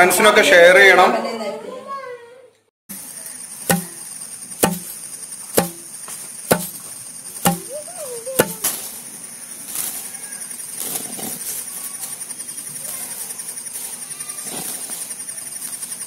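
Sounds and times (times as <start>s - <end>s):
insects chirring: 2.9s - 16.0s
pestle pounding in stone mortar: 3.7s - 4.0s, 4.6s - 5.0s, 5.6s - 5.9s, 6.5s - 6.8s, 7.4s - 7.8s, 8.4s - 8.7s.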